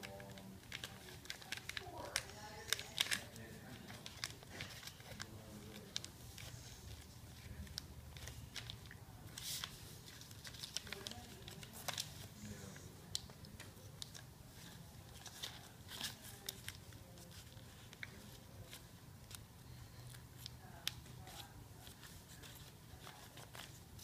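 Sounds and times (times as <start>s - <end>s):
paper crinkling and clicking: 0.0s - 12.3s, 13.0s - 24.0s
low room hum: 0.0s - 24.0s.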